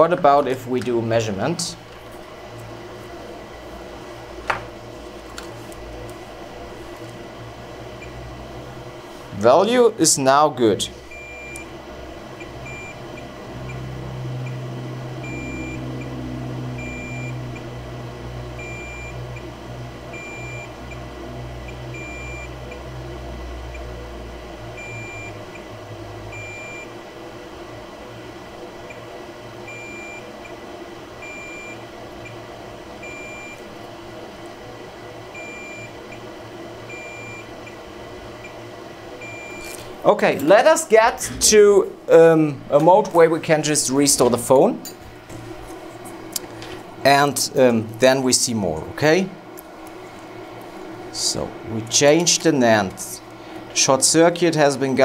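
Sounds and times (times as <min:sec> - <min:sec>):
low hum: 0:00.0 - 0:55.0
multimeter high beeps: 0:16.8 - 0:17.4.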